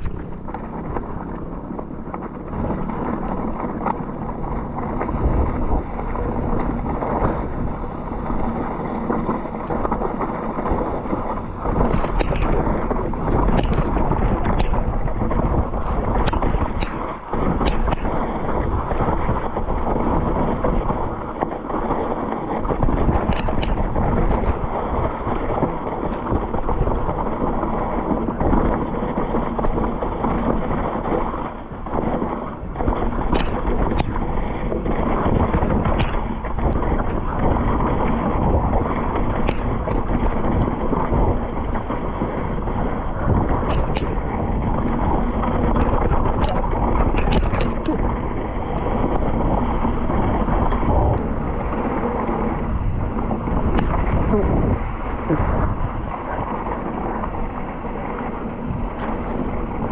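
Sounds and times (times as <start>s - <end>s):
bike rattling over bumps: 0.0s - 59.9s
tyre noise on wet dirt: 0.0s - 59.9s
wind rush on microphone: 0.0s - 59.9s.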